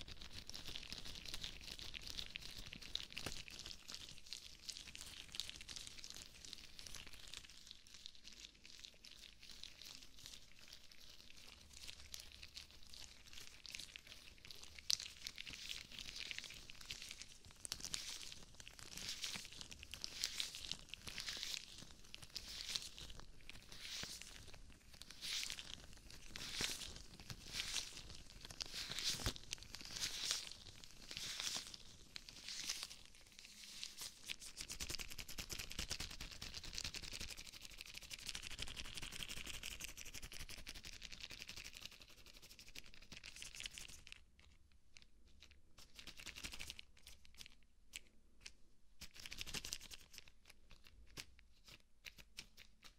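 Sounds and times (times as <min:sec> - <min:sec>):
rubber gloves rustling on microphone: 0:15.4 - 0:34.8.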